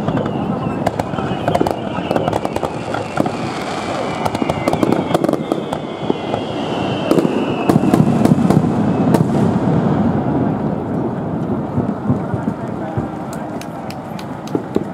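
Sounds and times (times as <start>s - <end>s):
faint descending whistle: 0.0s - 9.3s
fireworks crackling and popping: 0.0s - 14.9s.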